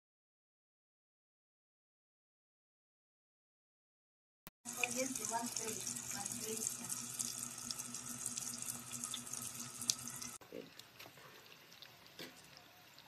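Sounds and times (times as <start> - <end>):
oil sizzling and crackling: 4.7 - 13.0.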